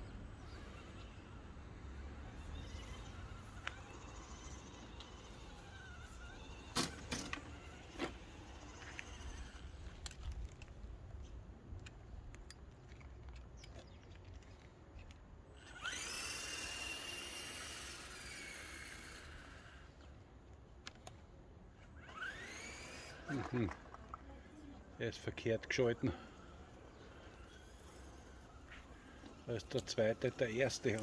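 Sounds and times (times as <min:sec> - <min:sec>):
electric motor whining: 0:00.0 - 0:10.7, 0:15.5 - 0:20.2, 0:21.8 - 0:31.0.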